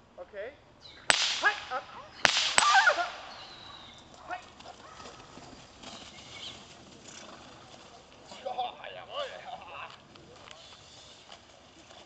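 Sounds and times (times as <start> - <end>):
whip cracking: 1.1 - 3.4.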